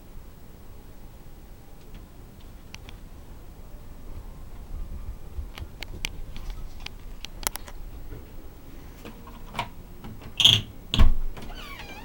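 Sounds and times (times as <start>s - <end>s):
light clicks: 1.8s - 3.0s.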